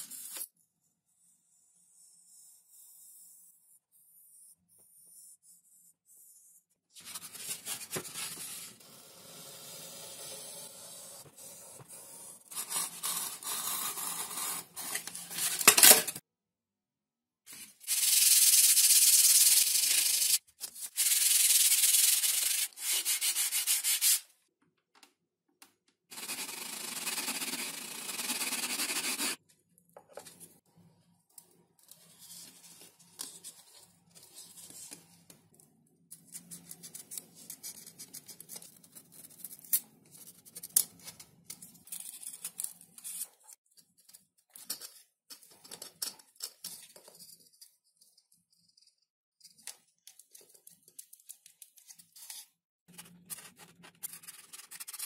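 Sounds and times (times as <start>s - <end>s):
sanding on foam and wood: 21.0s - 24.2s, 26.1s - 29.4s.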